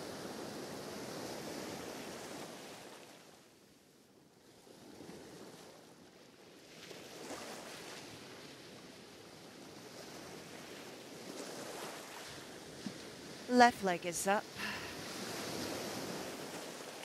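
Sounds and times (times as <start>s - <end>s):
ocean waves washing in: 13.5s - 17.0s.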